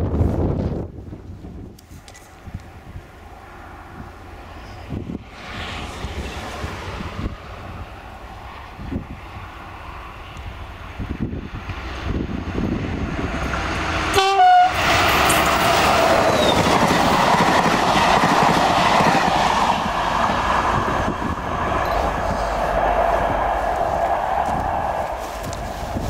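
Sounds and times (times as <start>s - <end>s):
train wheels rumbling on rails: 3.6s - 26.0s
train horn blast: 14.0s - 15.6s.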